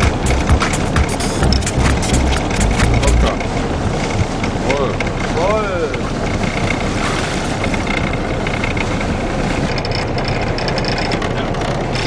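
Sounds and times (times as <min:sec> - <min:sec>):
boat engine idling: 0:00.0 - 0:12.0.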